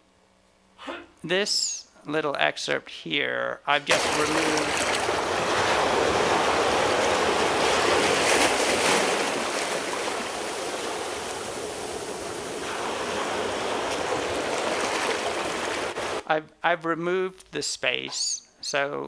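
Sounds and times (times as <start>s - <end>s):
ocean waves washing: 3.8s - 16.2s.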